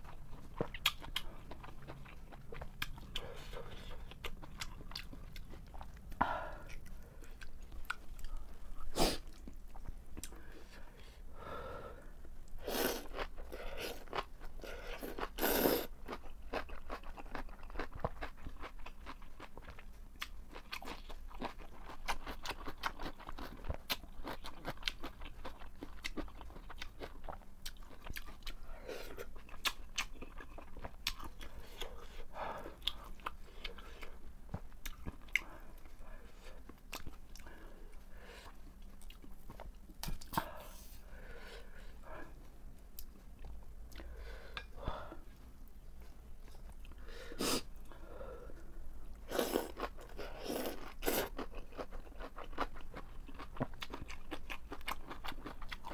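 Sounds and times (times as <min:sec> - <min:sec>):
chewing with wet clicks: 0:00.0 - 0:08.6, 0:09.3 - 0:10.4, 0:16.0 - 0:28.6, 0:29.3 - 0:32.0, 0:32.6 - 0:36.0, 0:36.6 - 0:40.5, 0:49.7 - 0:55.9.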